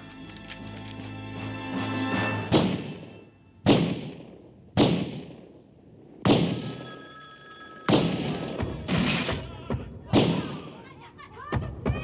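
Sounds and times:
telephone bell ringing: 6.6 - 8.9.

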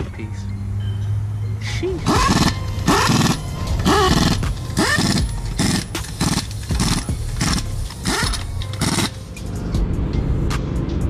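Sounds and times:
pneumatic impact wrench hammering: 2.0 - 9.5.

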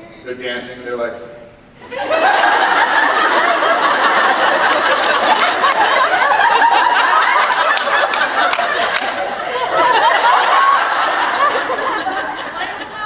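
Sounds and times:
audience laughing loudly: 1.8 - 13.0
sharp claps: 4.7 - 5.9, 7.4 - 9.4.

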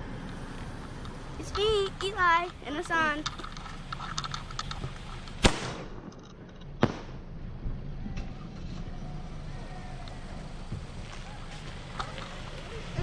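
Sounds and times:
fireworks bangs: 5.4 - 6.1, 6.7 - 7.9.

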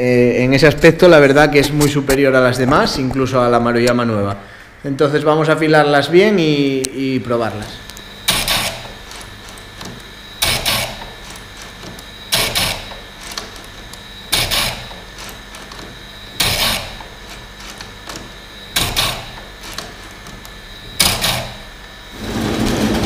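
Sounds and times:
chain grinder motor hum: 7.8 - 23.0
harsh grinding bursts: 8.2 - 9.6, 10.4 - 13.6, 21.0 - 23.0.

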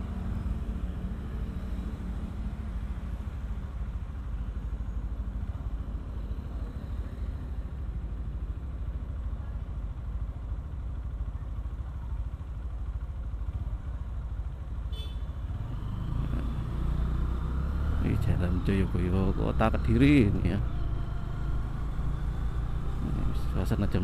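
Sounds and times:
motorcycle engine idling: 0.1 - 15.7.

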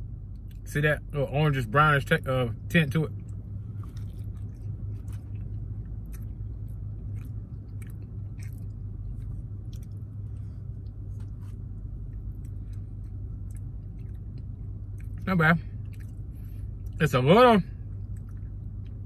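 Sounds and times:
steady low hum: 0.0 - 19.0
person chewing food: 3.1 - 17.0, 17.8 - 19.0
small mouth clicks: 3.2 - 10.0.

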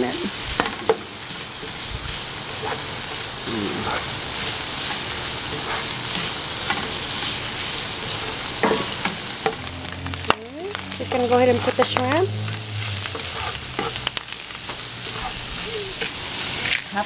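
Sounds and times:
meat sizzling in hot oil: 0.0 - 17.0
spatula scraping and tapping pan: 11.5 - 15.4.

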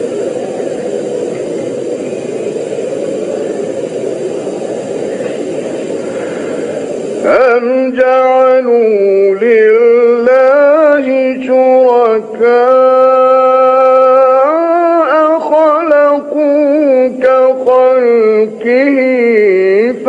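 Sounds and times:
man reciting in sung style: 7.2 - 20.0.

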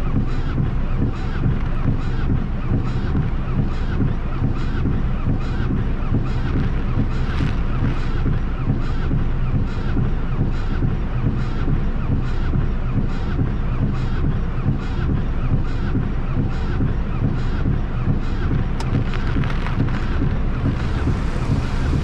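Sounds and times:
windshield wipers squeaking: 18.7 - 22.0.

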